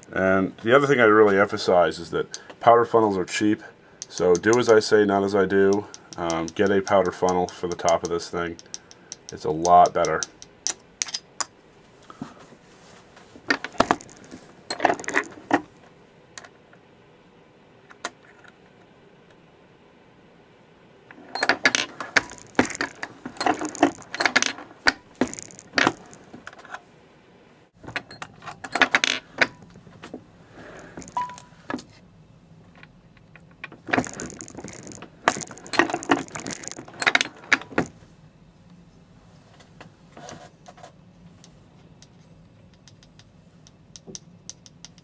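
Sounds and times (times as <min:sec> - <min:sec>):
reloading press clicking and clattering: 0:21.4 - 0:24.6, 0:25.2 - 0:26.2, 0:33.9 - 0:37.9.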